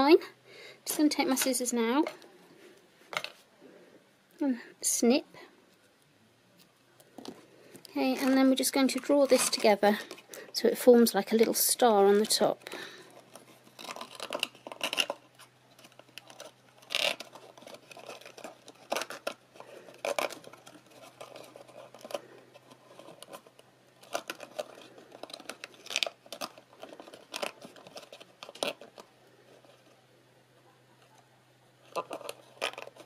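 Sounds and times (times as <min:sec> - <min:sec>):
ribbon and cardstock box rustling: 0:07.2 - 0:10.6.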